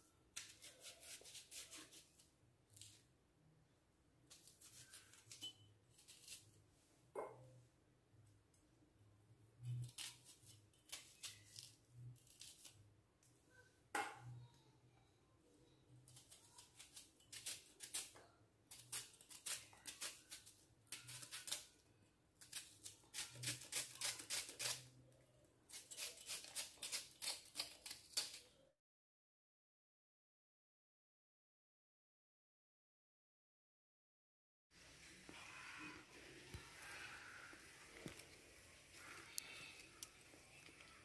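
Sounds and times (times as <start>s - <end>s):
knife cutting onion: 0.3s - 3.0s, 4.3s - 6.5s, 9.6s - 12.8s, 16.1s - 21.8s, 22.4s - 25.0s, 25.7s - 28.5s.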